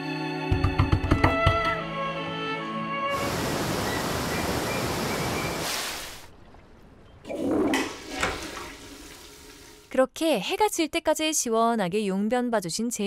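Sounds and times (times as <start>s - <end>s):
waterfall roaring: 3.1s - 5.8s.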